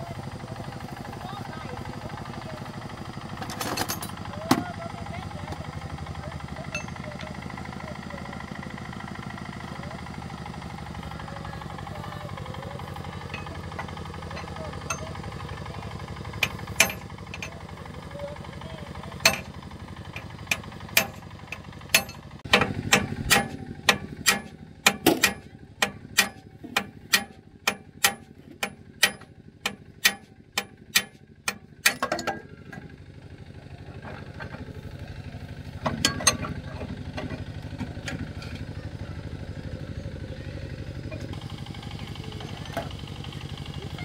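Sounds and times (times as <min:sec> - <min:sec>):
hammer striking metal: 0:16.3 - 0:17.5, 0:19.2 - 0:32.5.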